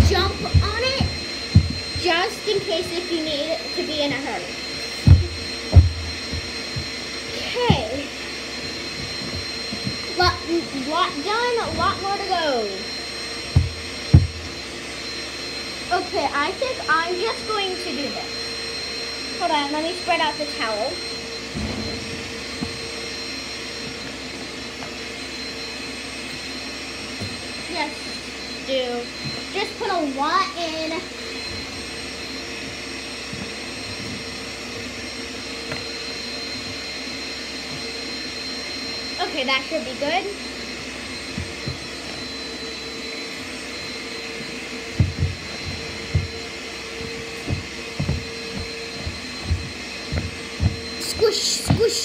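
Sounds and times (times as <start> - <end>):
soft low thumps on towel: 0.0 - 2.7, 5.0 - 6.9, 13.5 - 14.6, 44.9 - 51.0
vacuum cleaner running: 0.0 - 52.0.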